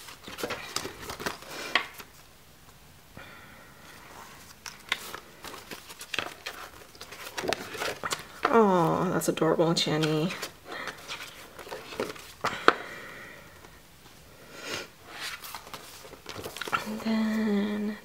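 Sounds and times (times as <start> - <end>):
paper calendar pages rustling: 0.0 - 2.2, 3.9 - 12.8, 15.1 - 17.5.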